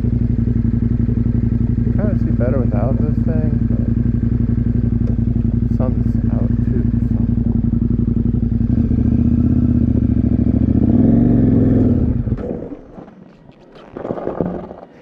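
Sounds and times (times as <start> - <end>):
motorcycle engine running: 0.0 - 15.0
clatter: 9.4 - 15.0.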